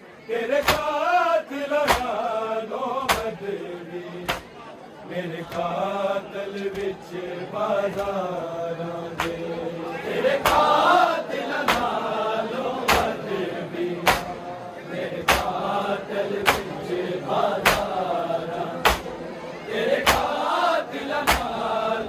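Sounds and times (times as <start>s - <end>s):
men chanting a lament: 0.2s - 22.0s
hands striking chests: 14.0s - 14.3s, 18.8s - 19.1s.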